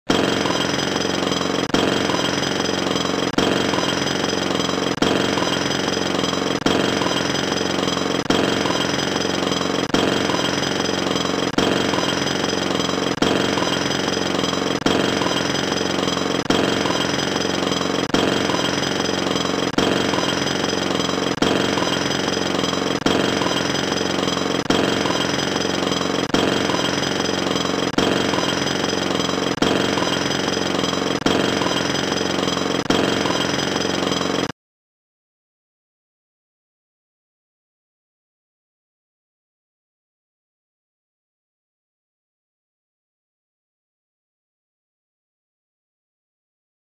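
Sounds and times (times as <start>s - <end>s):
jackhammer hammering: 0.1s - 34.5s.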